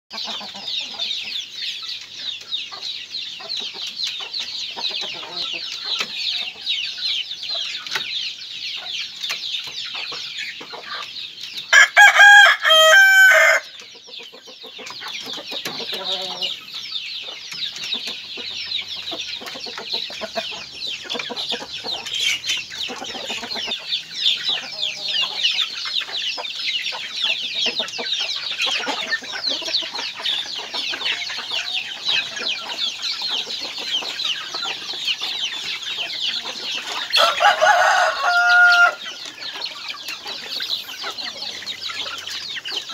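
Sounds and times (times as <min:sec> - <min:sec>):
hens clucking: 0:00.1 - 0:42.9
rooster crowing: 0:11.7 - 0:13.7, 0:37.1 - 0:39.0.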